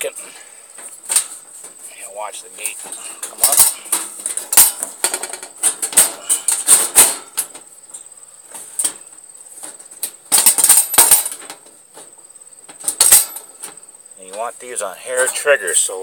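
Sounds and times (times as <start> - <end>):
metal cage trap clanking: 1.0 - 1.4, 2.6 - 9.0, 9.6 - 11.6, 12.7 - 13.8.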